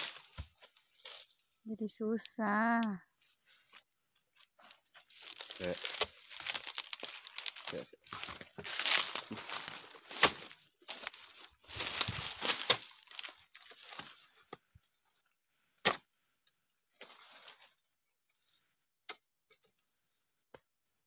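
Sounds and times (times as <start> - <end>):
dry fronds rustling and crackling: 0.0 - 14.8, 16.9 - 17.9.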